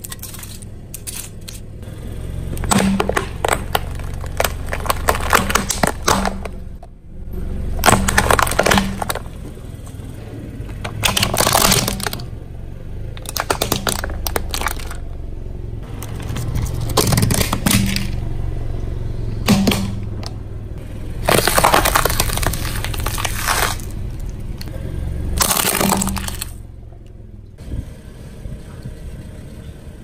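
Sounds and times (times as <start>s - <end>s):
car tyre crushing plastic: 0.0s - 7.0s, 7.7s - 12.4s, 13.0s - 15.2s, 15.8s - 18.3s, 19.4s - 20.4s, 21.1s - 24.7s, 25.4s - 26.6s
car engine humming: 0.0s - 30.0s.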